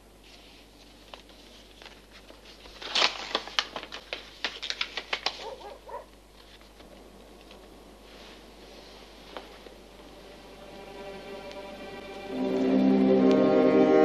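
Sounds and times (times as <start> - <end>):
paper crinkling: 0.2 - 10.2.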